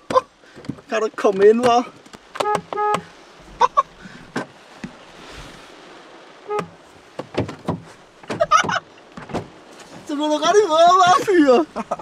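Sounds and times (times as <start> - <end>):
car horn honking: 2.4 - 3.1, 6.4 - 6.9.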